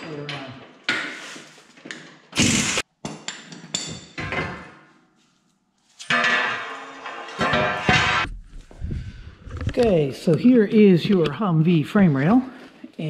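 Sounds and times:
metal clanking and clinking: 3.2s - 4.8s, 6.0s - 8.4s
ringing metallic clatter: 6.0s - 8.3s.

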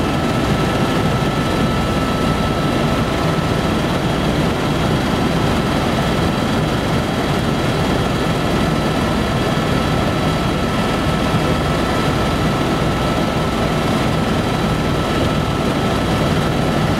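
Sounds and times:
helicopter engine and rotor: 0.0s - 16.9s.

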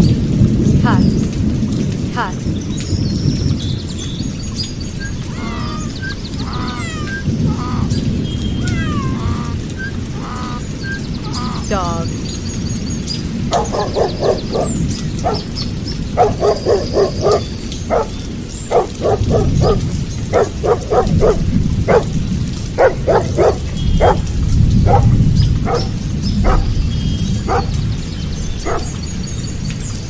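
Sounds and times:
dog barking: 5.3s - 8.0s, 8.6s - 9.6s, 13.5s - 27.8s, 28.6s - 29.0s.

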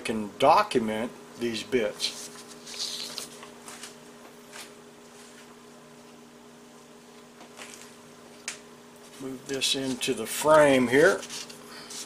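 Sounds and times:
low room hum: 0.0s - 12.0s
paper rustling: 2.0s - 4.0s, 9.8s - 12.0s.

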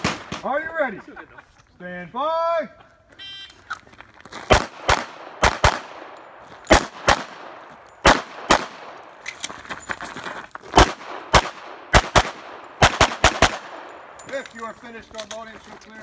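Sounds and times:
pistol shots with echo: 4.5s - 9.1s, 10.8s - 14.2s.

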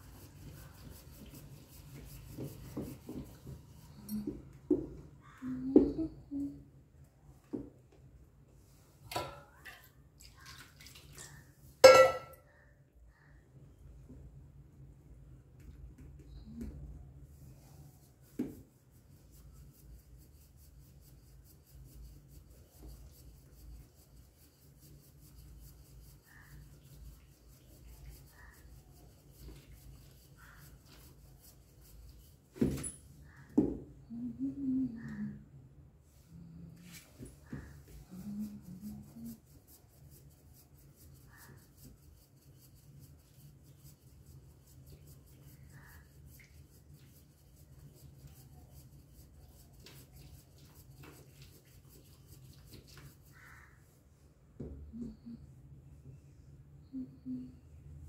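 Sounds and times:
wooden churn rubbing in curd: 0.0s - 4.1s, 17.5s - 32.5s, 36.8s - 53.8s
wooden churn swishing in pot: 0.0s - 4.2s.

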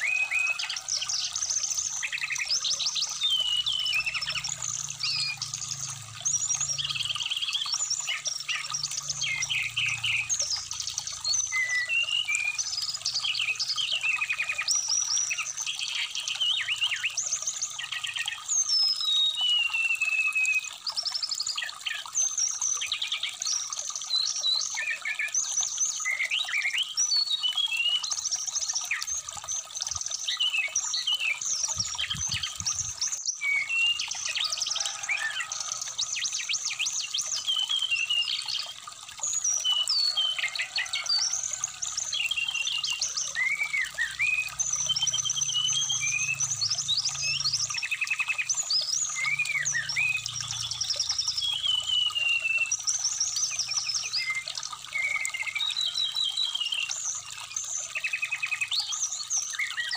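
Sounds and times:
bird singing chirps and trills: 0.0s - 59.9s
trickling stream water: 0.0s - 59.9s.

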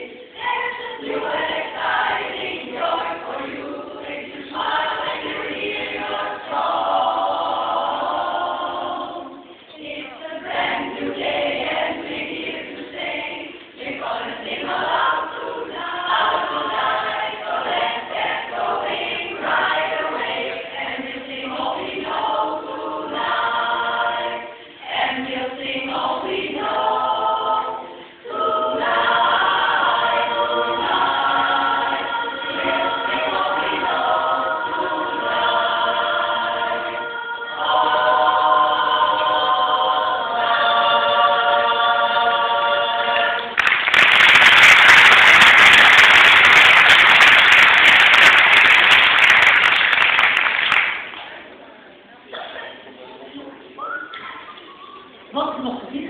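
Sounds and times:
women's chorus singing a cappella: 0.0s - 44.0s
audience applause: 43.4s - 51.2s.

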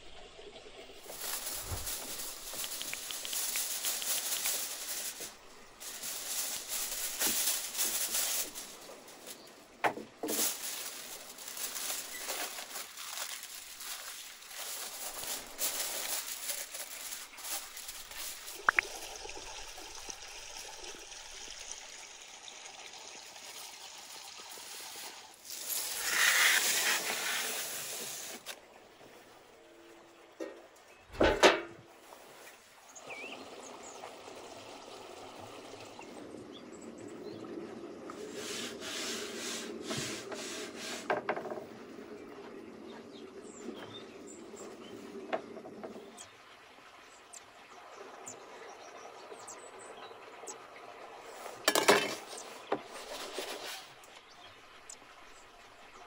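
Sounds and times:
aluminium foil crinkling: 1.0s - 20.0s, 23.4s - 28.6s.

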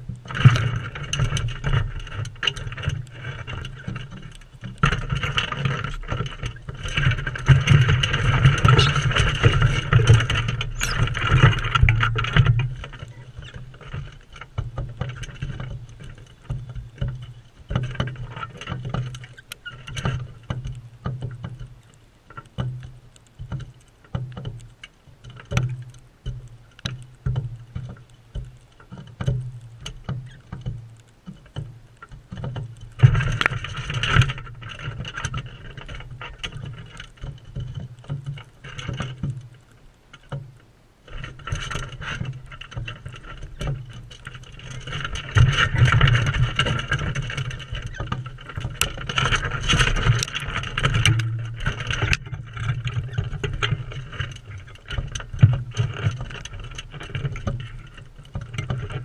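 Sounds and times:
birds tapping and knocking: 3.6s - 39.5s
birds screeching: 10.7s - 11.1s.

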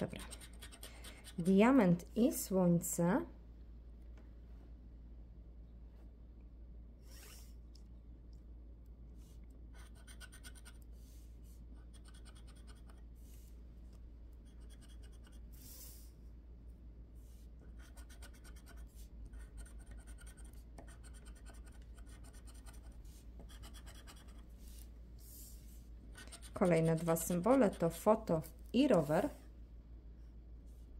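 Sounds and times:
scraping lottery ticket coating: 26.3s - 29.2s.

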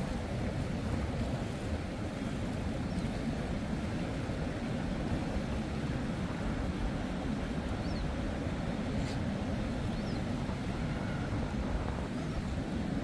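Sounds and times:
ocean surf breaking: 0.0s - 13.0s
wind rumbling on microphone: 0.0s - 13.0s.

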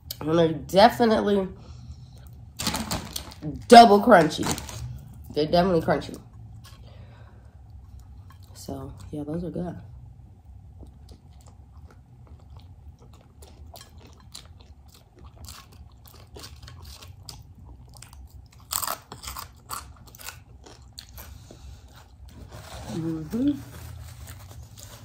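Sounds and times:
crunchy food chewing: 10.6s - 22.6s.

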